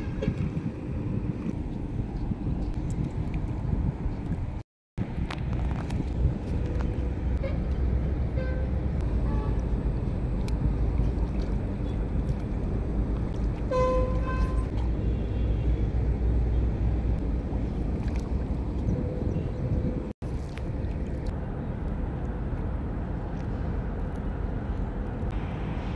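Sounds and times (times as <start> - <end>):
low outdoor rumble: 0.0 - 25.9.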